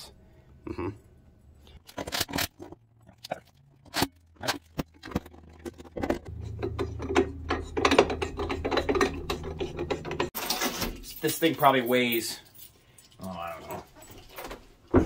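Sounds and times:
low hum: 0:02.8 - 0:10.3
rattling and scraping: 0:03.7 - 0:14.8
sharp clicks and knocks: 0:03.8 - 0:10.4.

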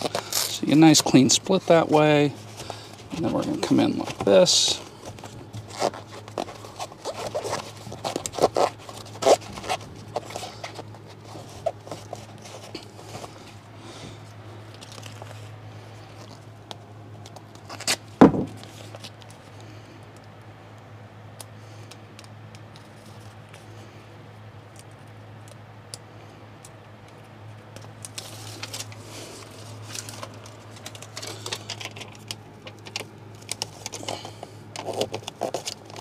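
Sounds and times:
foam insulation scraping and clicking: 0:00.0 - 0:13.6, 0:26.6 - 0:36.0
knock: 0:18.2 - 0:18.6.

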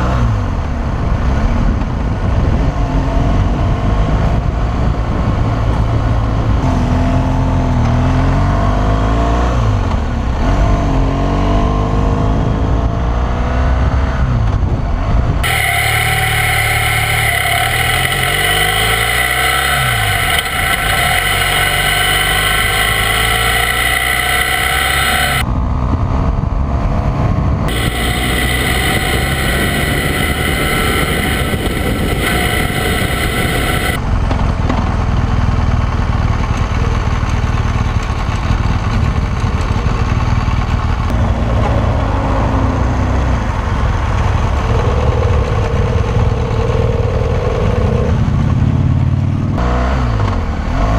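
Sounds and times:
wind and road noise: 0:00.0 - 0:50.9
motorcycle engine running: 0:15.3 - 0:25.5, 0:27.6 - 0:42.2.

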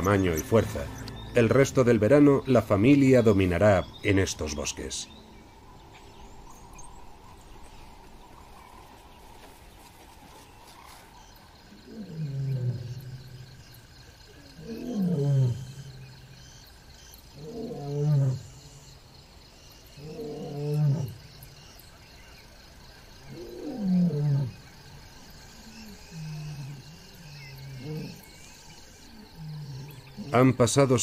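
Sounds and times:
faint insect drone: 0:00.0 - 0:31.0
lion roaring: 0:11.7 - 0:13.5, 0:14.3 - 0:16.1, 0:17.4 - 0:18.6, 0:20.0 - 0:21.2, 0:23.3 - 0:24.7, 0:25.7 - 0:30.4.

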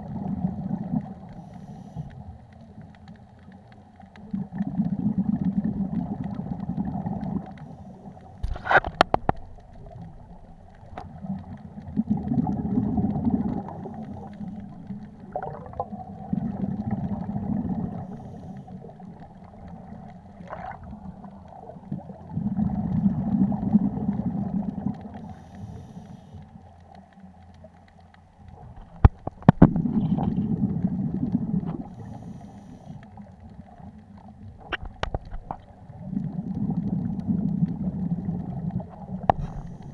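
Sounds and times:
bubbles rumbling underwater: 0:00.0 - 0:01.5, 0:02.2 - 0:25.4, 0:28.3 - 0:32.3, 0:33.0 - 0:39.9
regulator inhalations: 0:25.2 - 0:26.4, 0:32.0 - 0:33.0.

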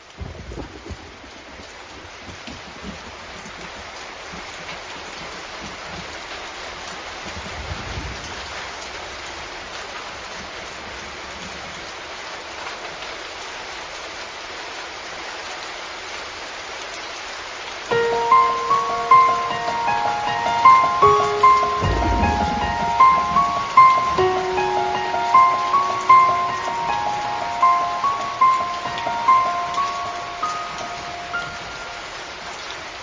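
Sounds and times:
steady rain hiss: 0:00.0 - 0:33.0
low rumble: 0:21.8 - 0:23.0.

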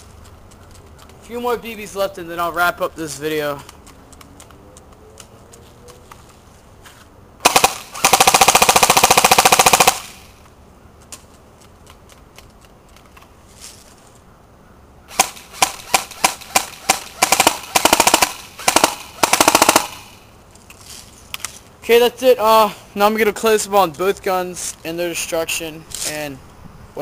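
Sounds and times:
airsoft gun firing bursts: 0:07.4 - 0:10.3, 0:15.1 - 0:20.2.

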